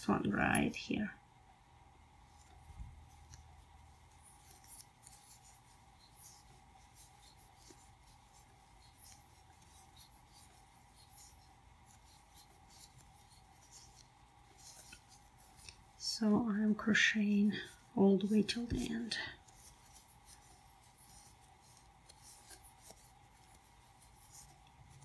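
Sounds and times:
crochet hook scratching yarn: 0.0s - 0.8s, 2.2s - 25.0s.

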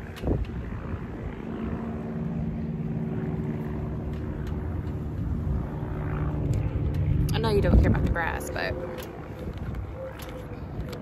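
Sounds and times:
low mechanical drone: 0.0s - 11.0s.

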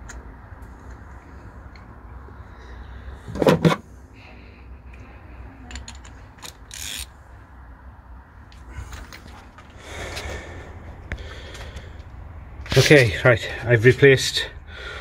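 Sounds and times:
ratchet wrench clicking: 5.7s - 7.1s.

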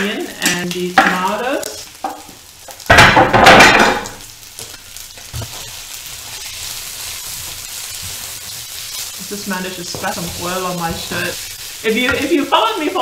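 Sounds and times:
onion and tomato sizzling in oil: 0.0s - 13.0s
knock on pan: 2.9s - 4.2s
spatula stirring: 4.6s - 13.0s.

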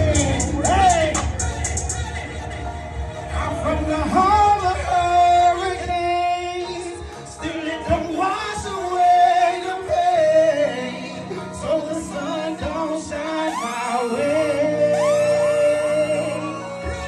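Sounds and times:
backing track through speakers: 0.0s - 17.0s
person singing long notes: 12.0s - 17.0s.

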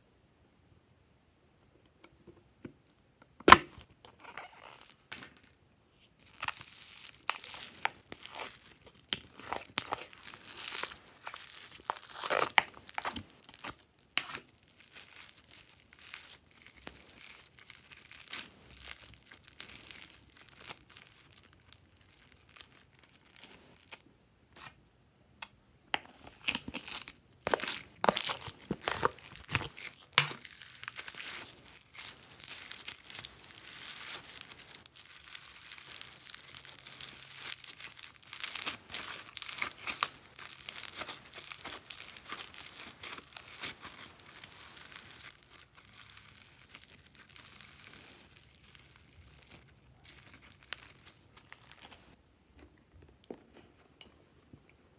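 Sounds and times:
slime crackling and popping: 6.2s - 24.0s, 26.0s - 52.0s.

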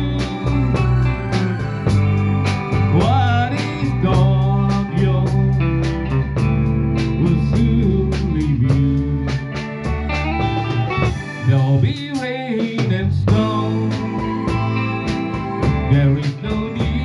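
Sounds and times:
person singing: 0.0s - 6.4s, 7.0s - 17.0s.

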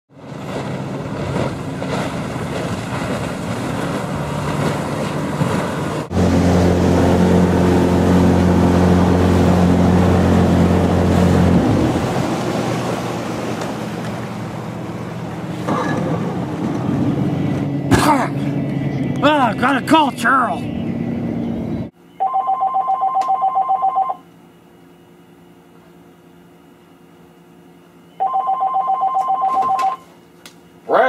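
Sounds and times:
wind and water rushing: 0.1s - 21.9s
outboard motor running: 0.1s - 22.0s
loud steady engine drone: 0.1s - 22.1s.

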